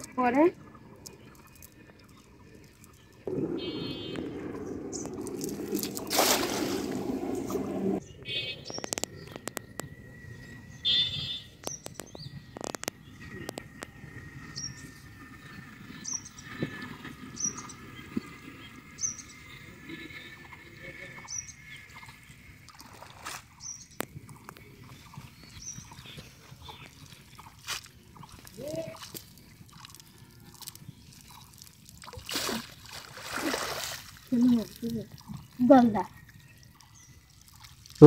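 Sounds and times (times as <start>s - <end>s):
clicks and small splashes: 0.0s - 3.3s, 5.0s - 7.6s, 22.6s - 25.1s, 26.0s - 38.0s
net splashing into water: 5.2s - 7.7s, 31.5s - 34.8s
small bird chirping: 8.0s - 22.9s, 23.5s - 31.8s.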